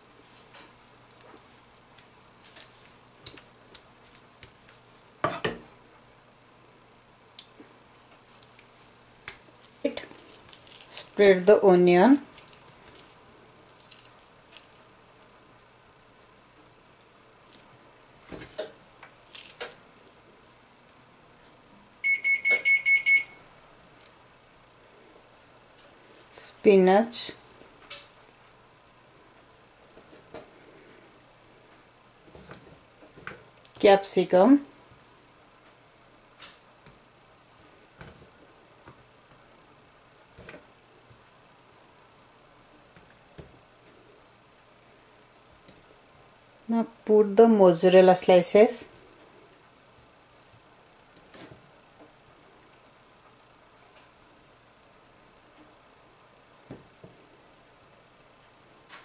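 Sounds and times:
onion slices clicking and rustling: 1.0 - 4.8, 7.4 - 11.5, 12.2 - 15.4, 18.3 - 20.2.

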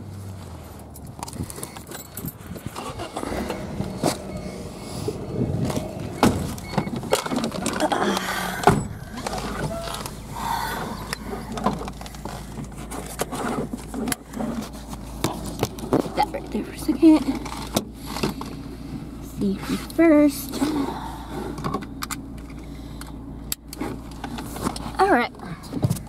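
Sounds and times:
car cabin hum: 0.0 - 26.0
knocks clicks and rustling: 0.9 - 18.7, 21.5 - 26.0
heavy thump: 5.0 - 7.1, 8.5 - 9.8.

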